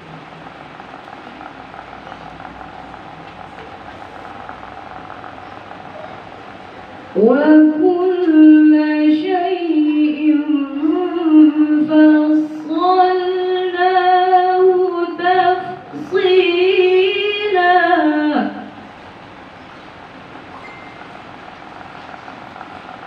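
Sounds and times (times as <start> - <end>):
woman reciting melodically: 6.5 - 18.9.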